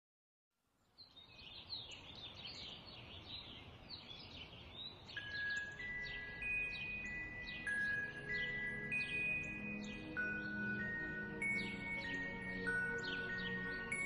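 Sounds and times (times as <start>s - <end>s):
sparrows chirping: 0.8s - 14.0s
soft chime-like music: 5.0s - 14.0s.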